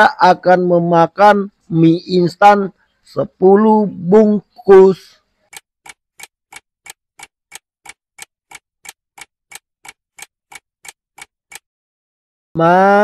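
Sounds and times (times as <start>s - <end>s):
clock ticking: 5.4s - 11.7s.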